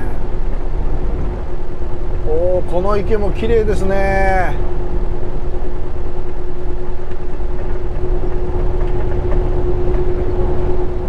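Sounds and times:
road noise: 0.0s - 11.0s
truck engine rumble: 0.0s - 11.0s.

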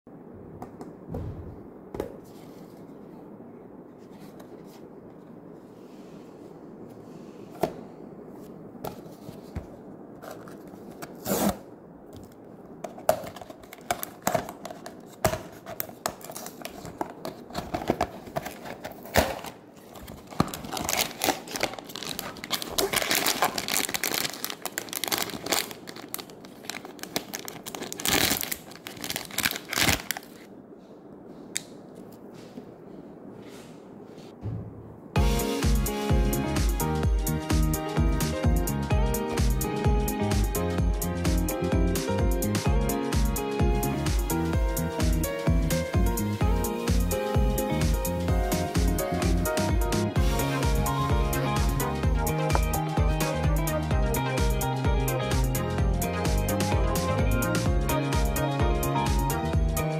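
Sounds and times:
foil bag crinkling and tearing: 13.2s - 30.5s.

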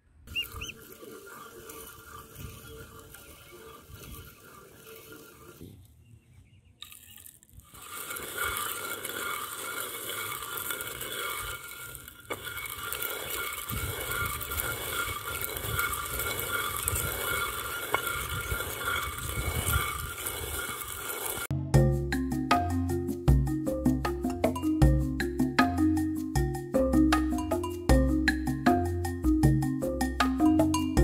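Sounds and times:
stone hand mill grinding: 0.3s - 6.0s, 6.8s - 21.5s.

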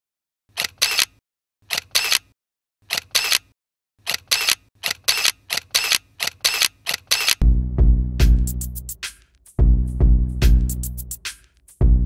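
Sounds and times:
camera shutter clicking: 0.6s - 2.3s, 2.9s - 3.5s, 4.1s - 7.4s.

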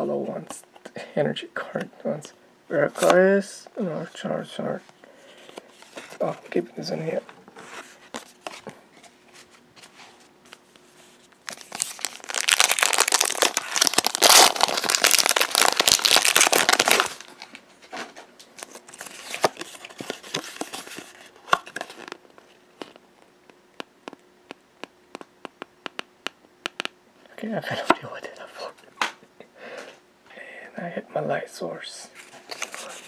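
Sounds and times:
foil wrapper crinkling: 11.3s - 17.6s, 18.4s - 22.2s
cards clicking and tapping: 22.8s - 27.0s.

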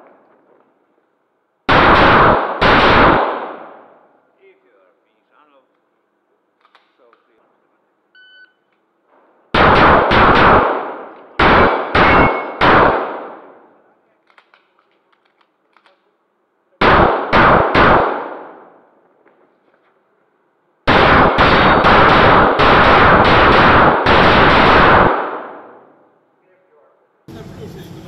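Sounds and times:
pistol shots echoing indoors: 1.7s - 4.1s, 9.5s - 13.7s, 16.8s - 18.9s, 20.9s - 26.0s
shot timer beep: 8.2s - 8.7s, 12.0s - 12.6s.

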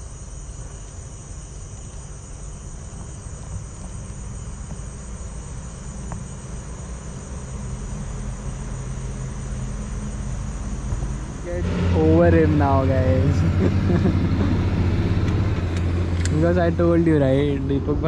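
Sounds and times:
night crickets chirping: 0.0s - 18.0s
low rumble: 7.5s - 18.0s.

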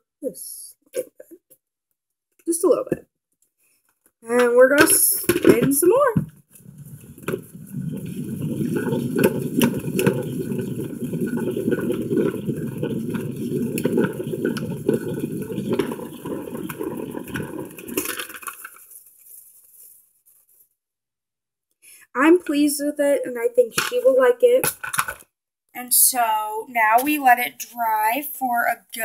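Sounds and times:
salad spinner whirring rattle: 6.7s - 18.6s.

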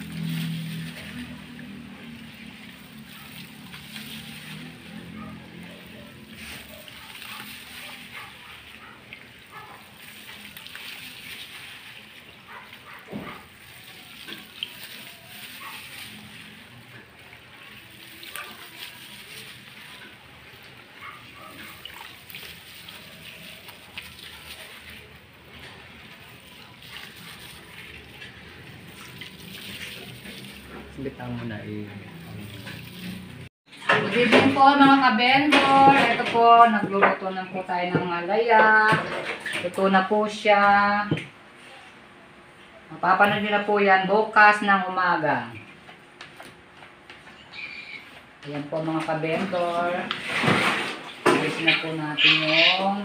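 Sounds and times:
wet batter squishing: 0.0s - 33.5s.

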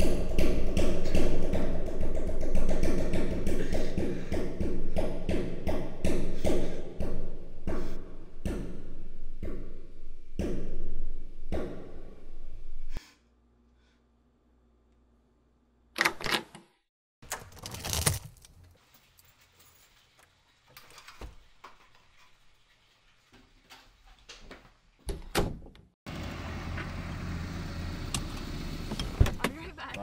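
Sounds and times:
car on a street: 26.1s - 30.0s.

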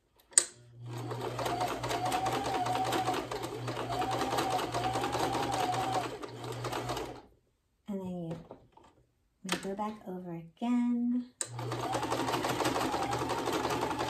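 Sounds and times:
sewing machine stitching: 0.8s - 7.3s, 11.4s - 14.0s.

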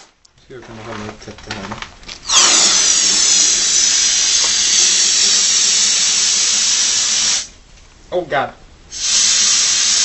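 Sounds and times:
compressed air hissing out: 2.2s - 7.6s, 8.9s - 10.0s.

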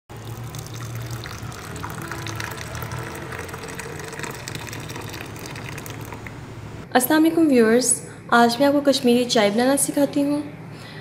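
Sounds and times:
tea pouring into a mug: 0.1s - 6.4s
background music: 0.1s - 8.7s.

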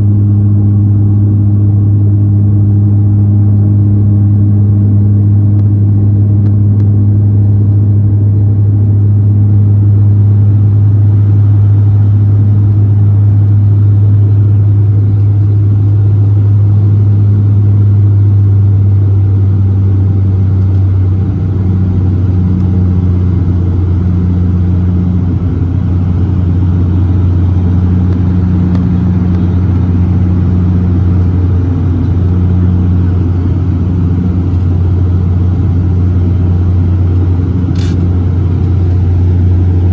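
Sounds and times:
turboprop engines droning in cabin: 0.0s - 39.9s.

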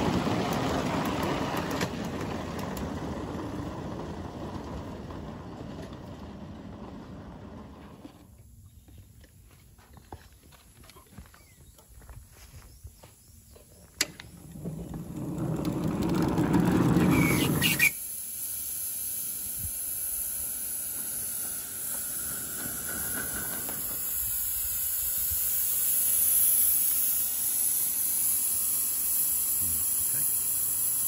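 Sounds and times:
miniature locomotive rumble: 0.0s - 11.2s, 13.4s - 31.0s
steam hissing: 16.1s - 31.0s.

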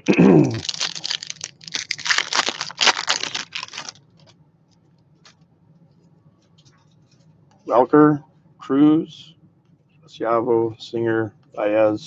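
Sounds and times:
wrapper tearing and crinkling: 0.4s - 4.3s.

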